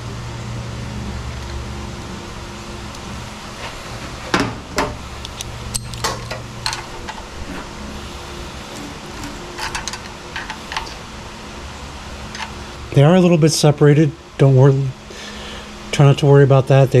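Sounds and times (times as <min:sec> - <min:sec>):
steady low hum: 0:00.0 - 0:17.0
metal tools clinking on brackets: 0:05.3 - 0:07.2, 0:09.2 - 0:11.0.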